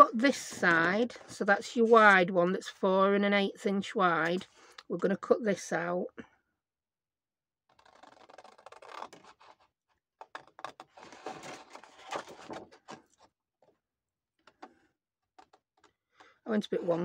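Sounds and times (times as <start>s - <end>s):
scissors cutting paper: 7.7s - 9.6s.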